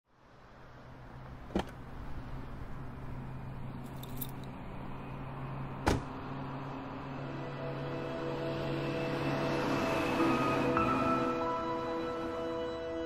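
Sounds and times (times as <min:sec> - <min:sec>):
keys jingling: 0:03.8 - 0:04.5.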